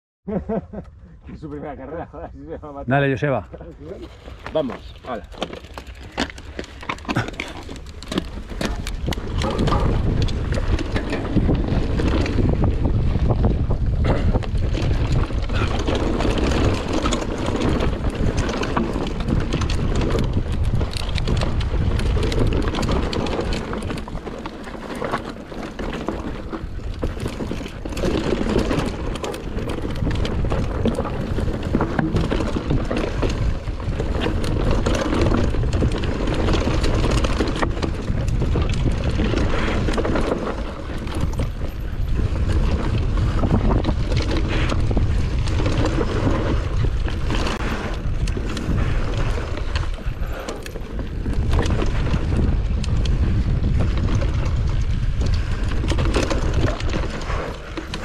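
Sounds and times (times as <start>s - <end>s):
wind buffeting on microphone: 1.0s - 58.0s.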